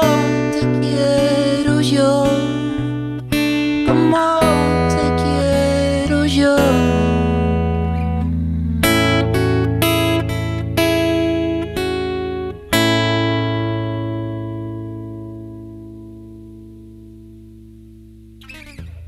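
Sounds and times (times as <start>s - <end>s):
acoustic guitar chords: 0.0s - 19.0s.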